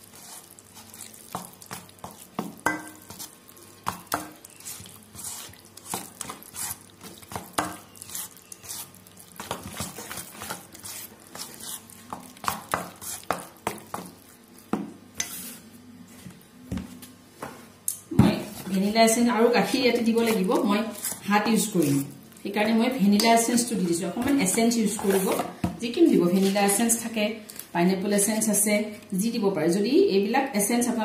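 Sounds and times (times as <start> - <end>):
batter stirred in steel bowl: 0.0 - 15.7, 18.2 - 27.2
spoon clinking and scraping bowl: 1.4 - 3.3, 15.2 - 15.6.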